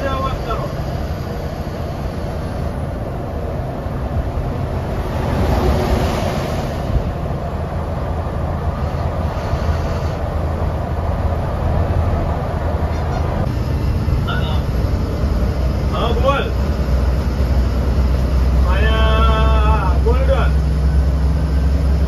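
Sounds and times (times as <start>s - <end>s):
bus engine drone and road noise: 0.0s - 22.0s.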